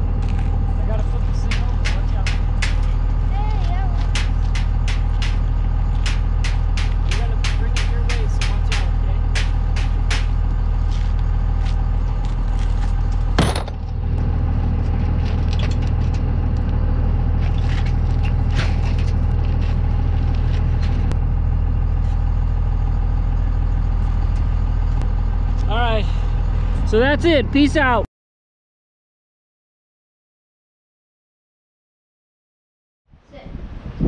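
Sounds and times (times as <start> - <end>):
vehicle engine idling: 0.0 - 28.0
metal frame clanking and rattling: 0.2 - 11.1, 12.2 - 14.0
loud metal bang: 1.4 - 3.0, 4.1 - 10.5, 13.4 - 13.8.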